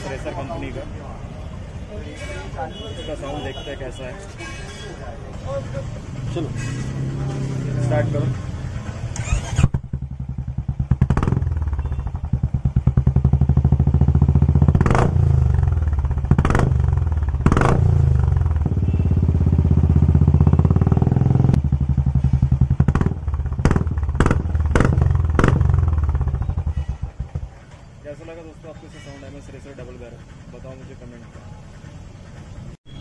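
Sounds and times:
motorcycle engine revving: 0:05.6 - 0:27.6
exhaust cracks: 0:09.1 - 0:18.8, 0:19.4 - 0:27.6.

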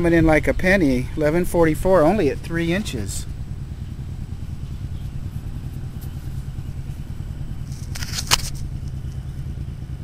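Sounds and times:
steady low rumble: 0:00.0 - 0:10.0
fingers crumbling dirt: 0:07.6 - 0:08.9
sharp click: 0:07.7 - 0:08.7.

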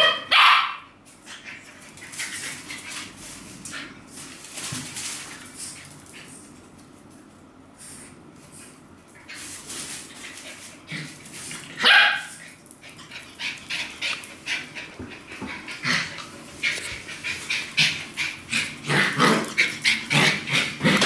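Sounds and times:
small dogs barking: 0:00.0 - 0:00.9, 0:11.8 - 0:12.4.

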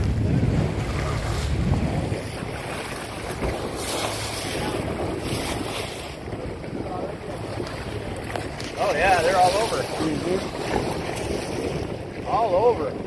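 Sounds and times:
sea water rushing along bow: 0:00.0 - 0:13.0
wind buffeting microphone: 0:00.0 - 0:13.0.

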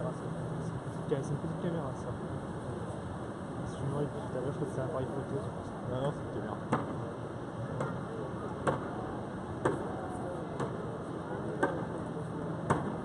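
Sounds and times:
city background noise: 0:00.0 - 0:13.0
faint voices: 0:03.6 - 0:13.0
sharp knocks: 0:12.6 - 0:13.0.

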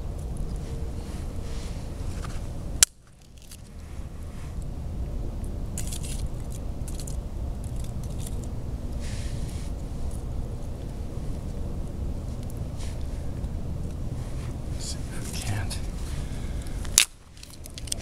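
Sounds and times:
steady low rumble: 0:00.0 - 0:18.0
sharp wood snap: 0:02.8 - 0:03.1
kindling scraping and crackling: 0:05.4 - 0:18.0.

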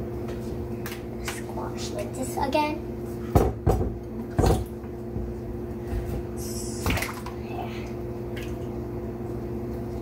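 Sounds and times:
steady low hum: 0:00.0 - 0:10.0
knock against glass: 0:03.4 - 0:04.6
water sloshing in dish: 0:06.7 - 0:08.8.

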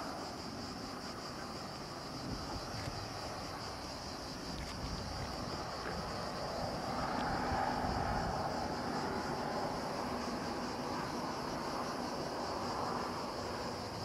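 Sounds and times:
wind buffeting microphone: 0:01.6 - 0:11.6.

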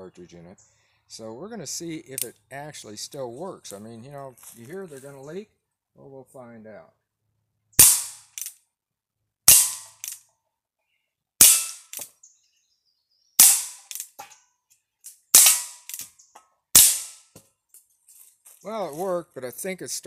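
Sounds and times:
air pistol shots popping: 0:07.8 - 0:08.5, 0:09.5 - 0:10.2, 0:11.4 - 0:12.1, 0:13.4 - 0:14.2, 0:15.4 - 0:16.1, 0:16.8 - 0:17.2.

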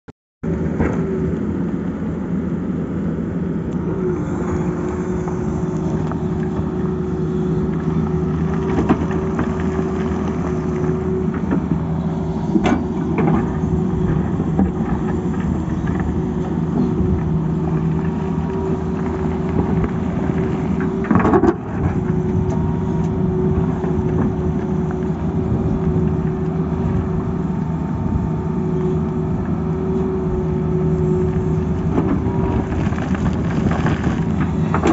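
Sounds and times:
excavator diesel engine running: 0:00.4 - 0:34.9
bucket scraping rock and soil: 0:04.1 - 0:22.3, 0:31.5 - 0:34.9.

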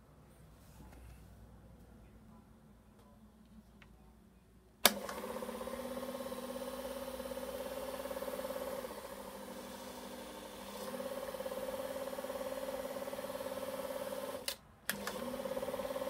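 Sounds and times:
film projector motor humming: 0:04.8 - 0:16.0.

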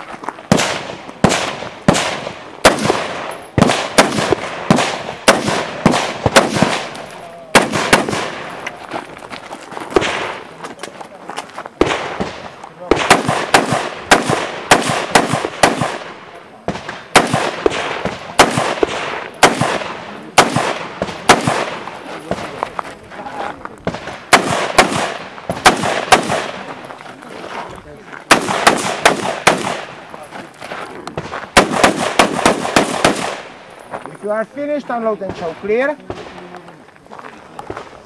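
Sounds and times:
rifle shots with echo: 0:00.5 - 0:08.6, 0:09.9 - 0:10.5, 0:11.8 - 0:22.6, 0:23.8 - 0:26.8, 0:28.2 - 0:30.2, 0:30.8 - 0:33.6.

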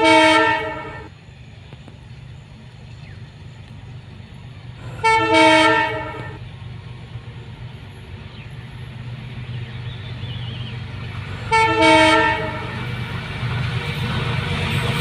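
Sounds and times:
train air horn blast: 0:00.0 - 0:01.1, 0:04.8 - 0:06.4, 0:11.4 - 0:12.9
locomotive engine rumble: 0:00.0 - 0:15.0.

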